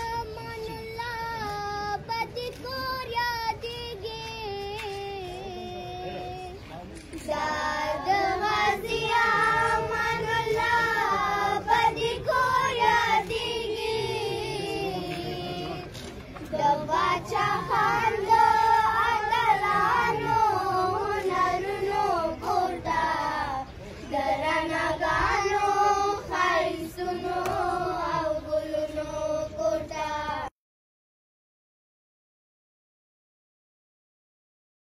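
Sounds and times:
children singing: 7.3s - 15.8s, 16.6s - 30.5s.

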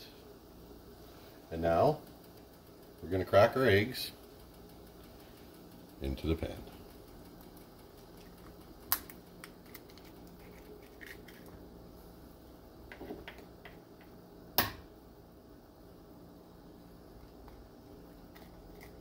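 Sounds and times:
egg shell cracking: 7.0s - 11.6s, 17.2s - 19.0s.

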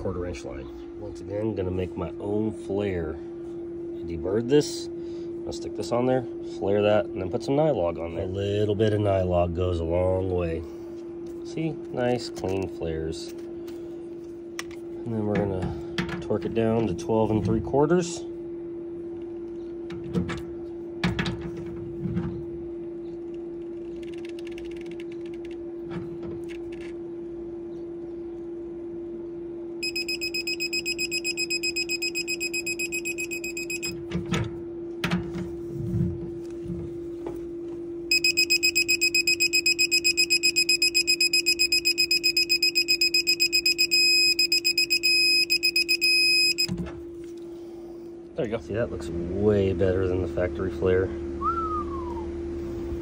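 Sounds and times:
steady low hum: 0.0s - 53.0s
torque wrench beeping: 29.8s - 34.0s, 38.1s - 46.7s.

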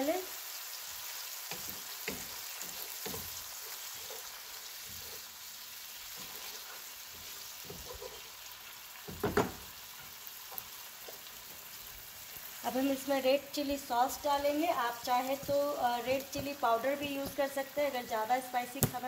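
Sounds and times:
food sizzling in oil: 0.0s - 19.0s
wooden spatula scraping a pan: 1.5s - 11.6s, 14.7s - 17.7s.

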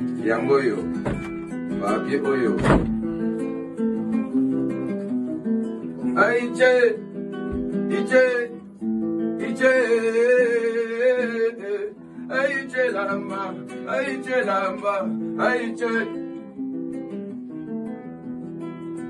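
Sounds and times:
plucked guitar: 0.0s - 19.0s
wordless singing voice: 5.8s - 16.3s.

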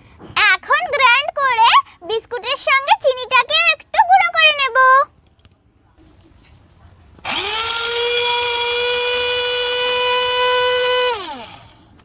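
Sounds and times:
electric grinder motor whining: 7.2s - 12.0s.

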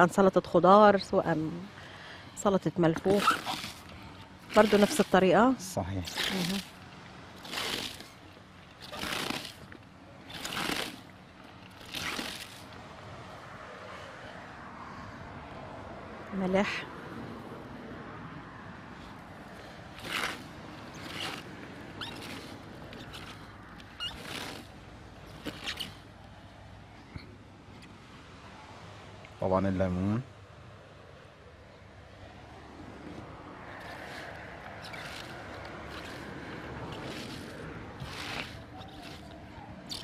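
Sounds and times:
shredded cabbage rustling: 3.0s - 5.2s, 6.0s - 6.8s, 7.4s - 9.7s, 10.3s - 11.1s, 20.0s - 24.7s, 33.8s - 40.0s.

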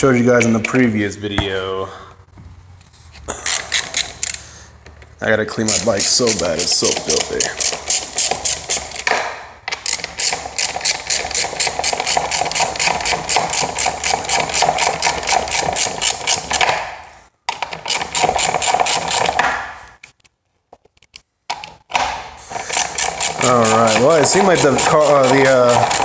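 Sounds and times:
bicycle freewheel ratcheting clicks: 9.8s - 16.5s, 17.9s - 19.3s, 22.7s - 26.0s.

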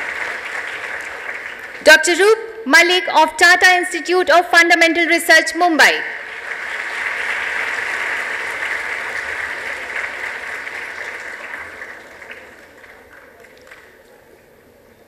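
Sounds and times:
audience applauding: 0.0s - 1.9s, 6.2s - 14.4s.

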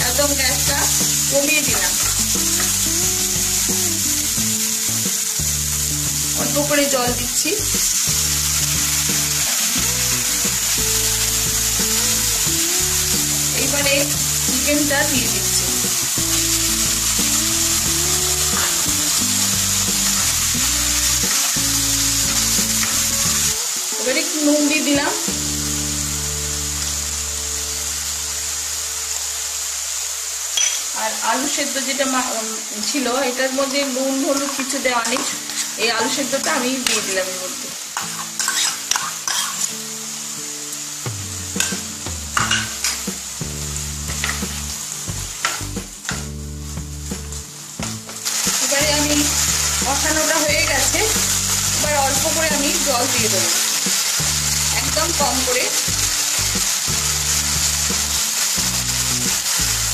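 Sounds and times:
background music of held notes: 0.0s - 30.6s, 32.8s - 59.9s
chicken sizzling in oil: 0.0s - 59.9s
wooden spatula stirring in pan: 33.8s - 37.2s, 38.0s - 39.7s
metal spoon scraping and stirring: 38.0s - 39.7s.

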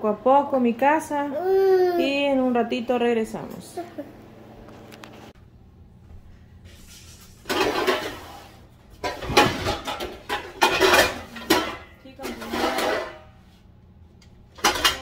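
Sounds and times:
clatter and rustling of objects: 6.8s - 13.7s, 14.5s - 15.0s.

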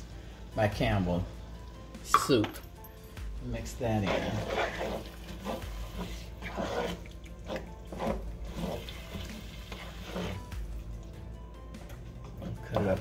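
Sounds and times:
wooden spoon stirring in metal pot: 3.6s - 10.8s.

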